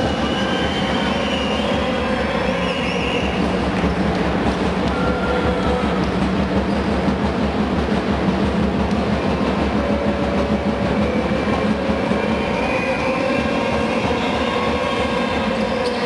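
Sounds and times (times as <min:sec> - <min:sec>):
crowd noise in arena: 0:00.0 - 0:16.0
thin whistle-like tones: 0:00.1 - 0:03.4.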